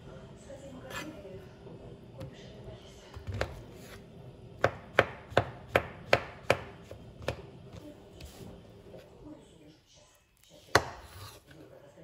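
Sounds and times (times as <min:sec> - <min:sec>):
knife chopping on cutting board: 0:04.6 - 0:07.5, 0:10.7 - 0:11.4.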